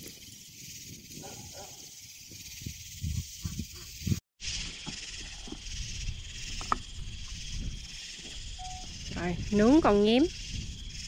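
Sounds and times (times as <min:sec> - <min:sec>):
night insects chorus: 0:00.0 - 0:11.0.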